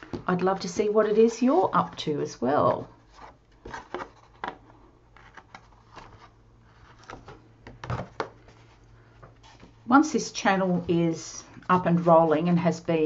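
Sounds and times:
paper rustling: 0.0s - 9.8s.

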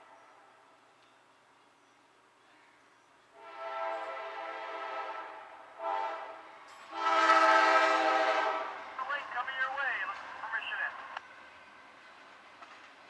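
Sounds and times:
locomotive air horn chord: 3.4s - 8.8s.

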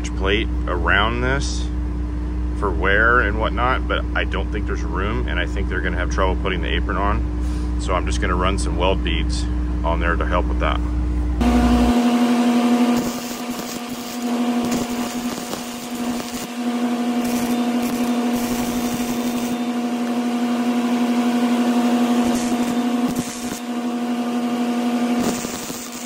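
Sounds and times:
loud machine hum: 0.0s - 26.0s
welder arc crackling: 11.4s - 26.0s.

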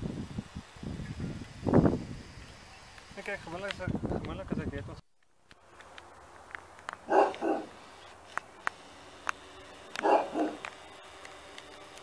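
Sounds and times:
dog barking: 7.1s - 7.8s, 10.0s - 10.6s.

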